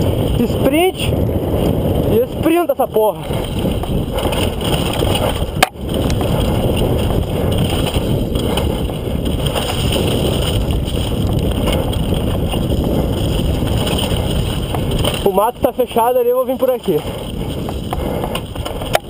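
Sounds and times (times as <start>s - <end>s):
mountain bike rumble and rattle: 0.0s - 19.0s
wind buffeting microphone: 0.0s - 19.0s.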